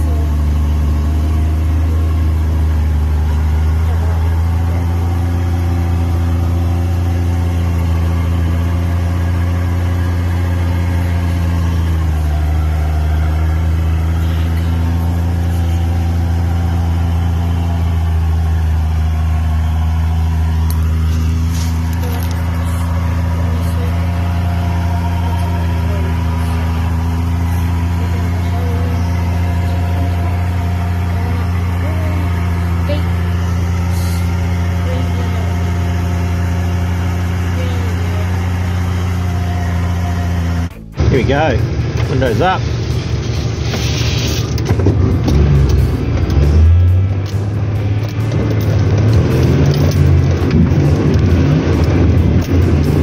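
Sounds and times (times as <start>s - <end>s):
engine running at low revs: 0.0s - 53.0s.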